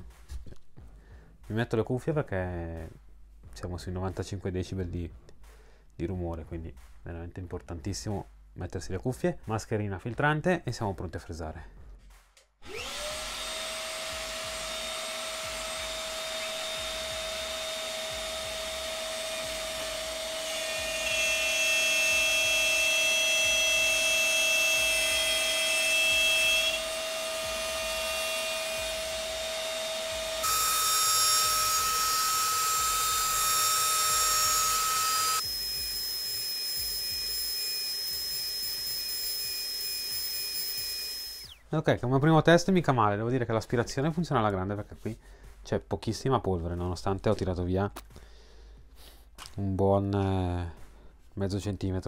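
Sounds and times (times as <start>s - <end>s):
router bit cutting wood: 12.6s - 41.6s
router whining: 12.6s - 41.7s
dust extractor suction: 12.7s - 41.6s.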